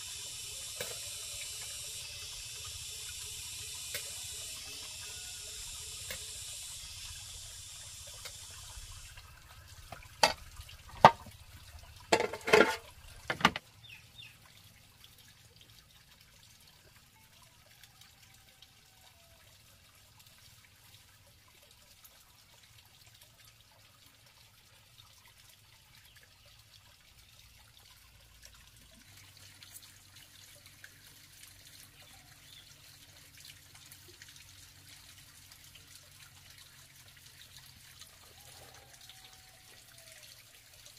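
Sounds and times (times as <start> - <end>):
water running: 0.0 - 14.3, 28.0 - 40.9
water trickling: 0.0 - 40.9.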